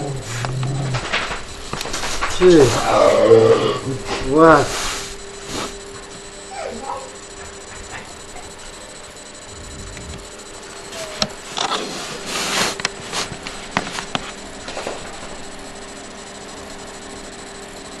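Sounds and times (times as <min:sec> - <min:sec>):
steady hum: 0:00.0 - 0:18.0
laptop rubbing and scraping: 0:04.1 - 0:05.8, 0:10.9 - 0:14.4.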